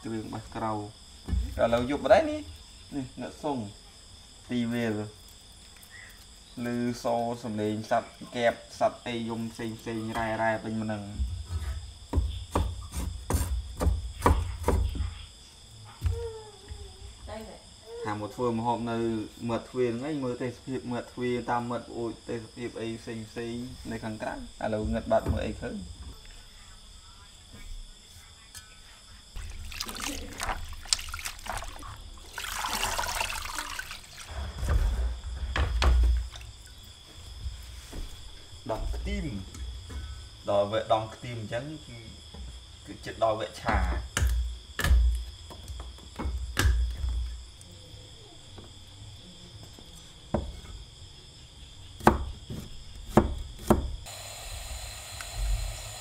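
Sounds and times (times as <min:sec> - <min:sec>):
crickets chirring: 0:00.0 - 0:56.0
cleaver chopping on wooden board: 0:12.1 - 0:15.0, 0:52.0 - 0:54.0
water splashing: 0:29.4 - 0:34.3
water pouring and draining: 0:29.4 - 0:34.9.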